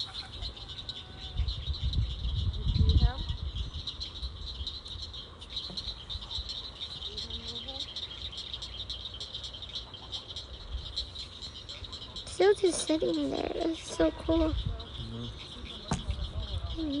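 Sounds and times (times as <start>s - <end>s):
chorus of chirring swamp animals: 0.0s - 17.0s.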